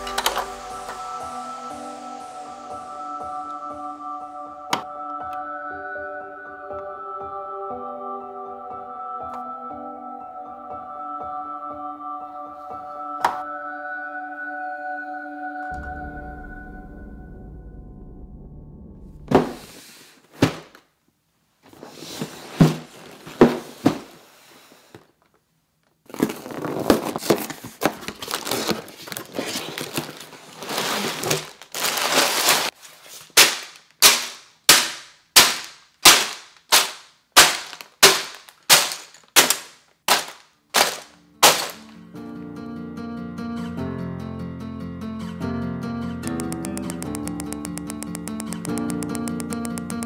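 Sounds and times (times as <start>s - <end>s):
plastic bags rustling: 22.0s - 24.4s, 26.0s - 42.0s
cardboard tearing: 26.1s - 34.2s
bags slapping down: 28.2s - 42.0s.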